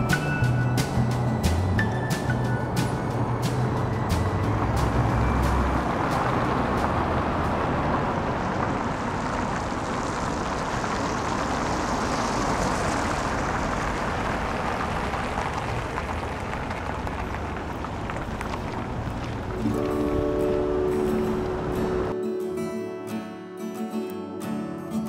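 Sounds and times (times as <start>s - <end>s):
road traffic: 0.0s - 25.0s.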